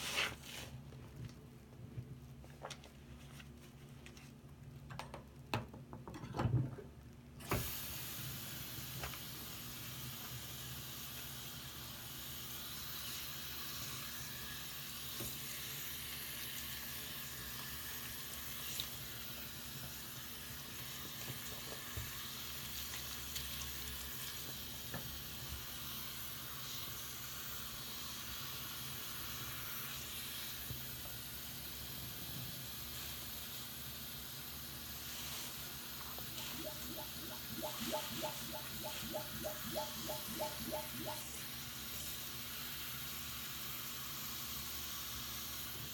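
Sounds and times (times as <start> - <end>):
wet sponge squelches: 35.0 - 41.6.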